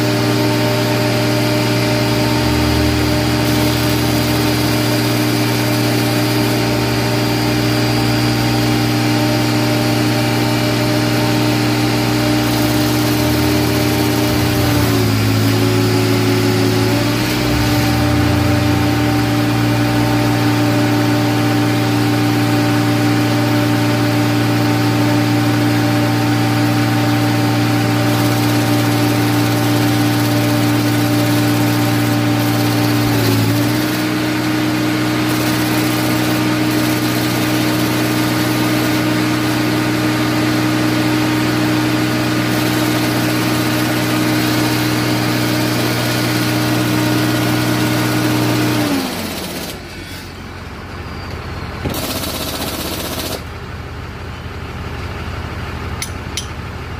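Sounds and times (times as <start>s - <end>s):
diesel engine idling: 1.2s - 4.4s, 13.1s - 20.5s, 53.0s - 56.9s.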